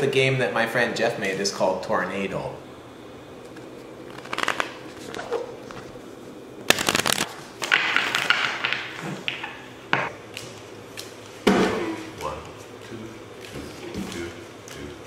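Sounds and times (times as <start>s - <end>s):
card deck riffle: 6.7s - 7.3s
cards flicking: 6.7s - 7.8s
cards falling together: 6.7s - 9.4s.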